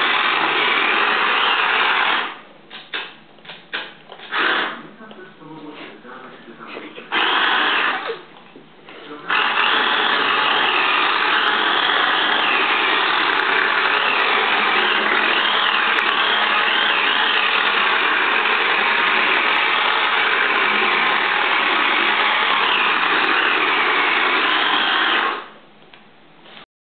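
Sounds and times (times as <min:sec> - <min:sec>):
toy car motor whirring: 0:09.3 - 0:25.5.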